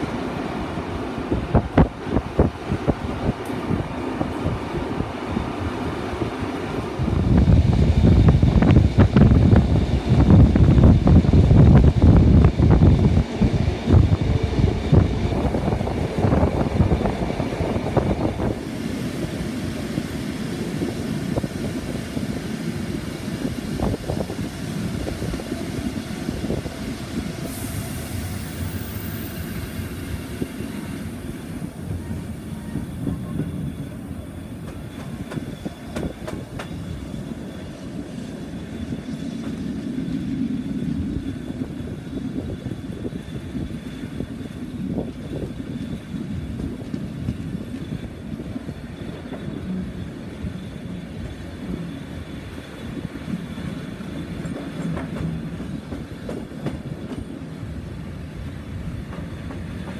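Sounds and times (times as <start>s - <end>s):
train wheels rumbling on track: 0.0s - 59.9s
rail clicks: 1.5s - 5.2s, 7.8s - 42.6s, 43.4s - 59.9s.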